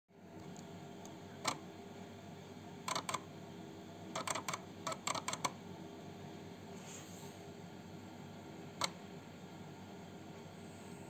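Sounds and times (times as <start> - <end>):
floppy drive clicking: 0.4 - 1.7, 2.8 - 3.3, 4.1 - 5.6, 8.6 - 9.2.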